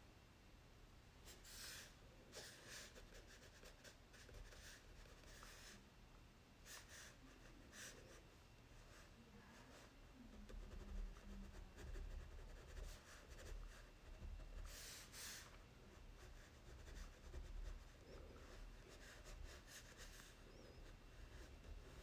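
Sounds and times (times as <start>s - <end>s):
crayon scratching on paper: 1.3s - 5.8s, 9.6s - 22.0s.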